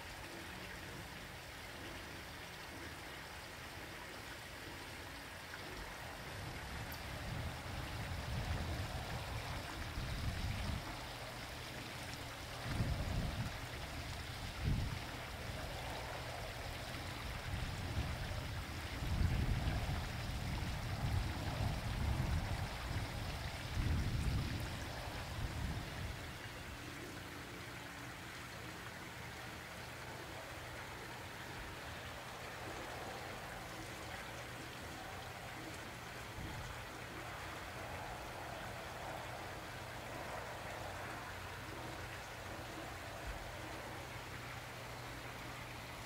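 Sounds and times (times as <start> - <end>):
water trickling over rocks: 0.0 - 46.0
wind buffeting microphone: 6.3 - 11.4, 12.3 - 26.6.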